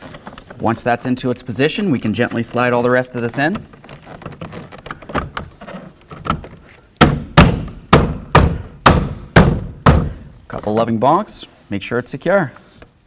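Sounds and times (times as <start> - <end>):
plastic panel clicking and rubbing: 1.8 - 6.8
hand striking plastic panel: 7.0 - 10.2.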